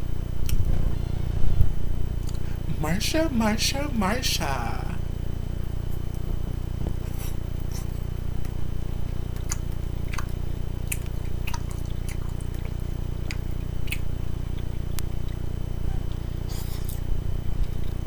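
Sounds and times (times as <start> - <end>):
steady low hum: 0.0 - 18.0
chewing with mouth smacks: 7.1 - 18.0.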